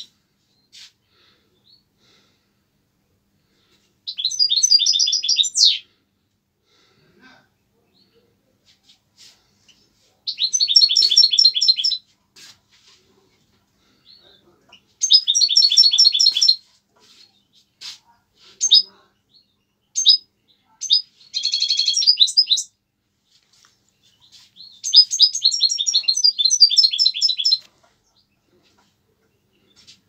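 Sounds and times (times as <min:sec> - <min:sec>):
bird chirps: 0:04.1 - 0:05.8, 0:09.7 - 0:12.0, 0:14.0 - 0:16.6, 0:18.6 - 0:22.8, 0:24.0 - 0:30.0
songbird trilling: 0:04.1 - 0:05.8, 0:10.3 - 0:12.0, 0:15.0 - 0:16.6, 0:20.0 - 0:20.2, 0:20.8 - 0:22.7, 0:24.7 - 0:27.6.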